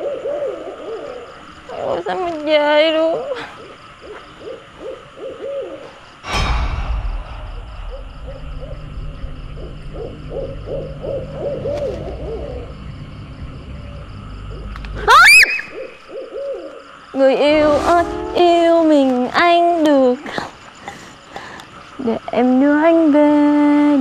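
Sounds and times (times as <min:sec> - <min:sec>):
sudden loud hit: 0:06.2 - 0:11.4
steady low rumble: 0:06.2 - 0:15.1.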